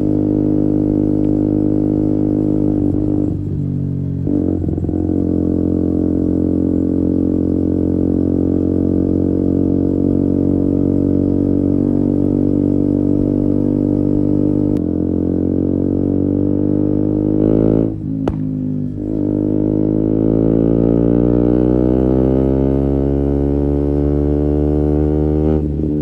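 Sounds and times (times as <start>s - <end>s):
motorcycle engine exhaust: 0.0s - 26.0s.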